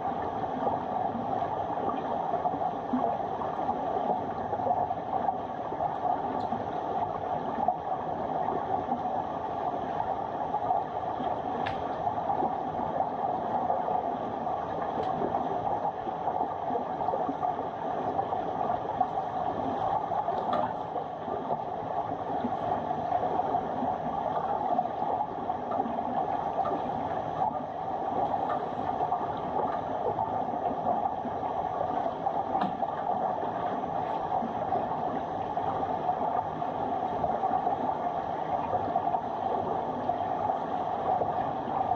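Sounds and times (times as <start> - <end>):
muffled underwater rushing: 0.0 - 41.9
faint ticks: 6.3 - 6.8.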